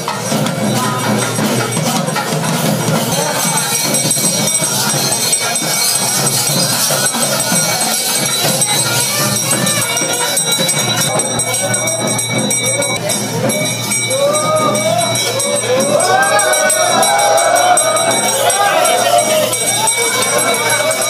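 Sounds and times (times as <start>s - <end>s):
crowd singing and calling: 0.0s - 21.0s
jingling and ringing: 0.0s - 21.0s
devotional music: 9.1s - 21.0s.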